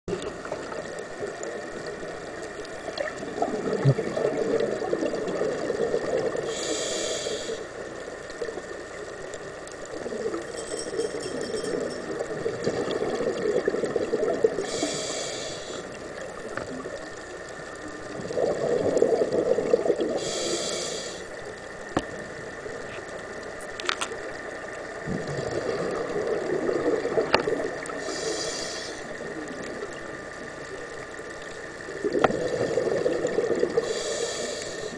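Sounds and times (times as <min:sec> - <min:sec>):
exhaust bubbling underwater: 0:00.1 - 0:06.7, 0:09.9 - 0:21.0, 0:24.9 - 0:28.3, 0:29.0 - 0:34.8
regulator inhale hisses: 0:06.4 - 0:07.8, 0:14.6 - 0:16.0, 0:20.2 - 0:21.4, 0:27.9 - 0:29.2, 0:33.8 - 0:34.9.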